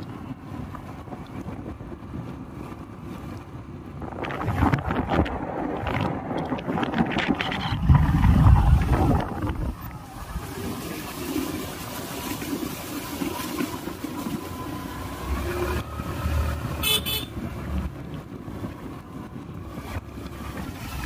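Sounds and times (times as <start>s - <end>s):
vehicle engine rumble: 0.0s - 21.0s
wind: 0.0s - 21.0s
vehicle horn: 16.8s - 17.4s.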